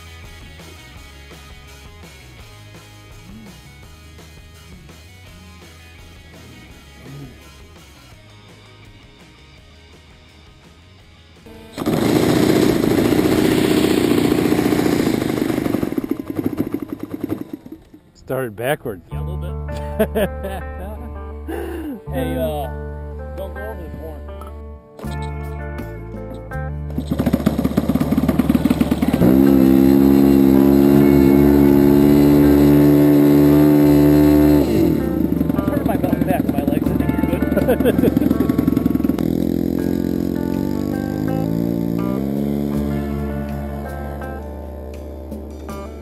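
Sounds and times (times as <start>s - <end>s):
model airplane engine running: 11.8s - 18.0s, 27.0s - 45.6s.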